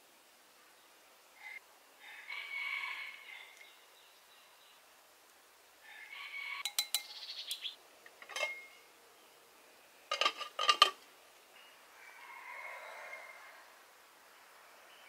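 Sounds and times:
glass pot lid clinking: 0:06.6 - 0:07.1, 0:08.2 - 0:08.8, 0:10.1 - 0:11.0.

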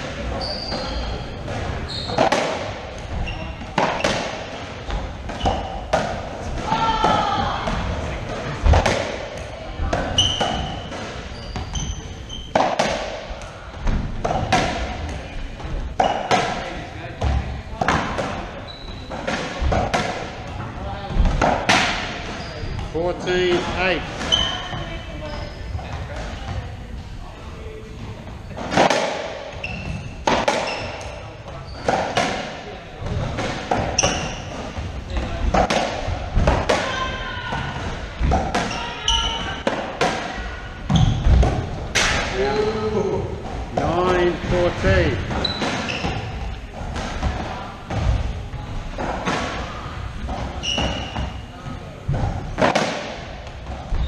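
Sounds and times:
rubber ball hitting racquet and walls: 0:00.0 - 0:25.0, 0:28.0 - 0:54.0
sneaker squeaks on wooden floor: 0:00.3 - 0:06.0, 0:10.0 - 0:13.1, 0:15.3 - 0:16.4, 0:18.6 - 0:19.4, 0:22.2 - 0:26.6, 0:29.5 - 0:32.2, 0:33.1 - 0:37.9, 0:38.5 - 0:39.7, 0:40.8 - 0:41.4, 0:44.9 - 0:46.6, 0:50.3 - 0:51.8, 0:53.7 - 0:54.0.

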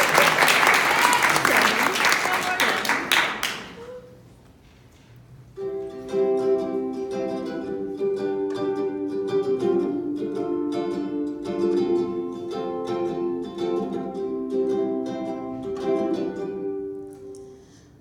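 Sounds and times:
applause: 0:00.0 - 0:04.0
ukulele strumming: 0:05.6 - 0:17.8.

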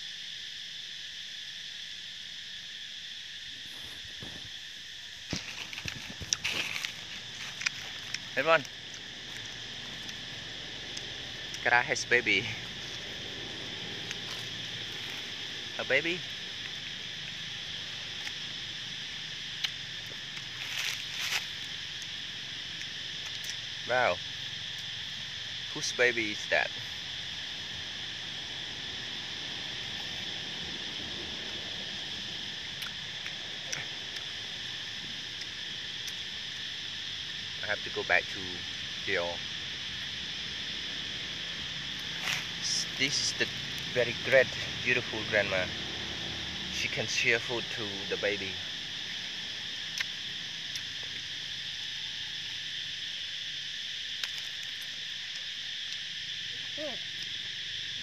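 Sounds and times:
insects buzzing: 0:00.0 - 0:58.0.

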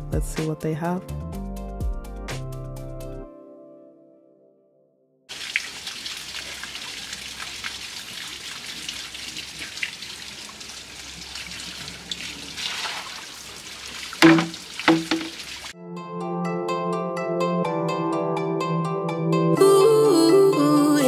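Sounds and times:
water trickling and dripping: 0:05.3 - 0:15.8.

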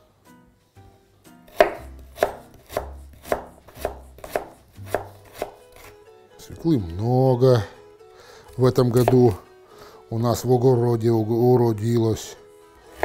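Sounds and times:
knife chopping on plastic board: 0:01.5 - 0:05.9, 0:09.0 - 0:09.4.

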